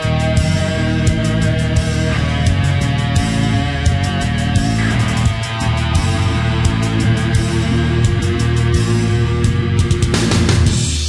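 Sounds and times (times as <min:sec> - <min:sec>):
loud rock music with guitar: 0:00.0 - 0:11.0.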